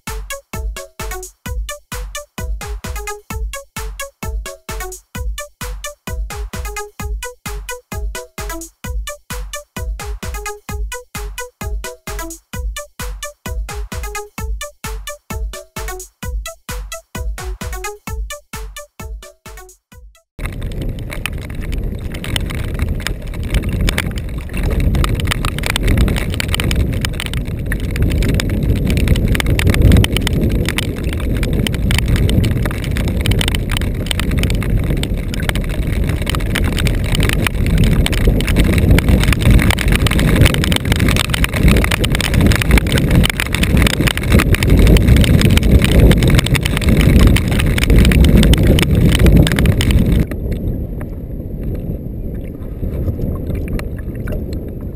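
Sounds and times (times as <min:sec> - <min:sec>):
choppy lake water: 0:20.4 - 0:54.9
rain: 0:20.4 - 0:54.9
wind buffeting microphone: 0:20.4 - 0:54.9.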